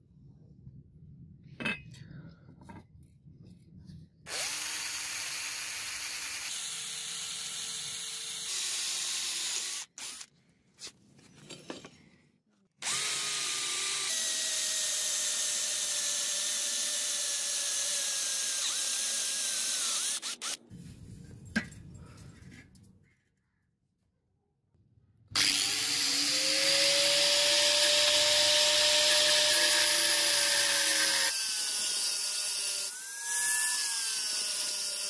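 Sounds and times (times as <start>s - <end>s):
electric drill whining through metal: 4.3s - 10.3s, 12.8s - 20.6s, 25.4s - 35.0s.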